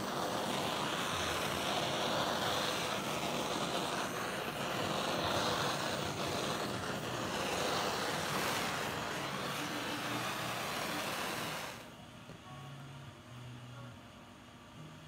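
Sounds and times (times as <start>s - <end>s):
torch flame roaring hiss: 0.0s - 11.9s.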